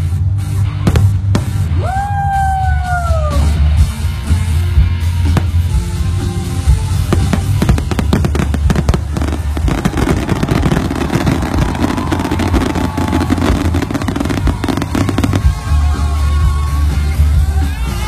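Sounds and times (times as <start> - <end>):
music with deep bass: 0.0 - 18.0
fireworks banging and crackling: 0.8 - 1.7, 6.4 - 16.5.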